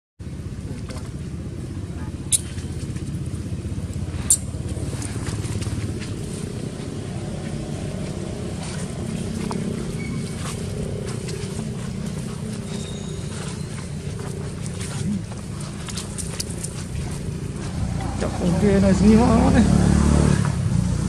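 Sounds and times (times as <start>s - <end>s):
vehicle engine running: 0.2s - 21.0s.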